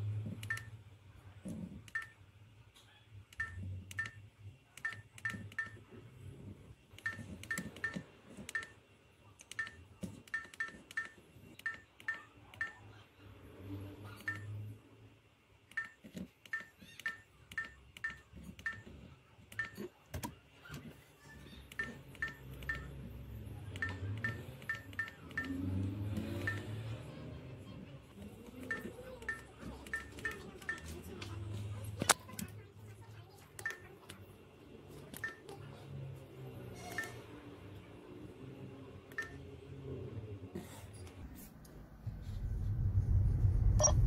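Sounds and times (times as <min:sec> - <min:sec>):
short high electronic beeps: 0:43.8 - 0:44.0.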